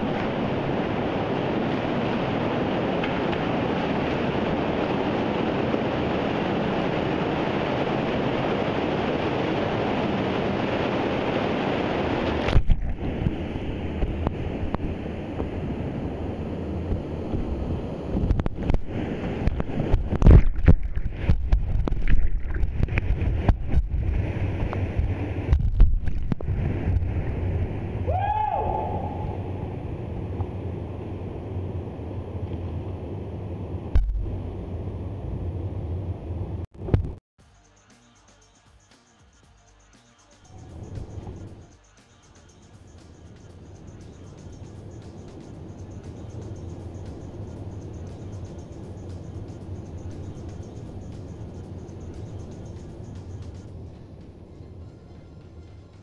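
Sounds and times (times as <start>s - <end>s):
whitewater rushing through rapids: 0.0s - 16.9s.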